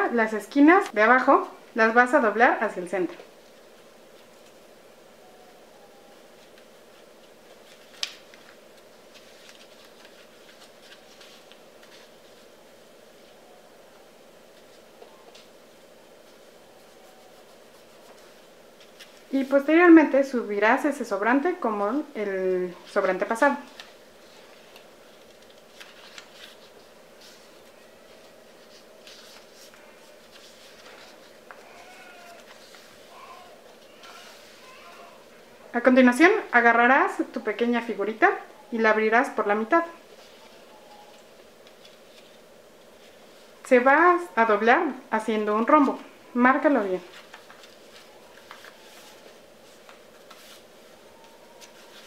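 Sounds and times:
steady low hum: 0:00.0 - 0:52.0
paper crackling and rustling: 0:06.2 - 0:13.4, 0:14.4 - 0:19.7, 0:22.7 - 0:35.4, 0:40.0 - 0:43.6, 0:46.8 - 0:52.0.

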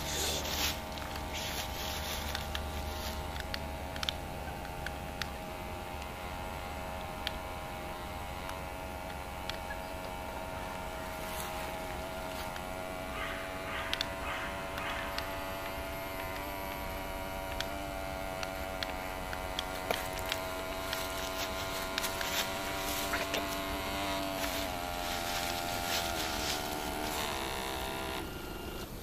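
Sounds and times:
electric motor whining: 0:00.0 - 0:29.0
faint clicks: 0:00.9 - 0:06.2, 0:12.2 - 0:29.0.

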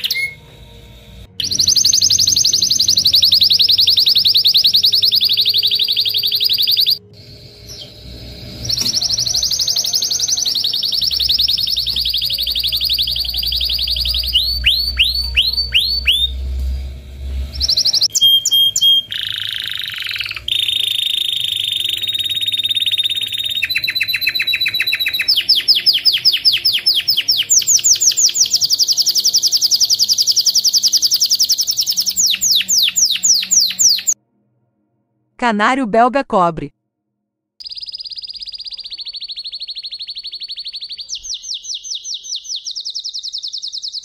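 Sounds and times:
canary singing trills: 0:00.0 - 0:00.5, 0:01.4 - 0:16.5, 0:17.5 - 0:34.2, 0:37.6 - 0:44.0
low hum: 0:00.0 - 0:34.9.

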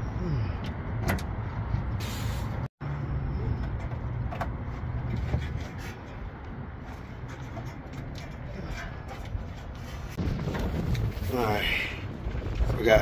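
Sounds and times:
vehicle engine rumbling: 0:00.0 - 0:13.0
short hiss: 0:02.0 - 0:02.6.

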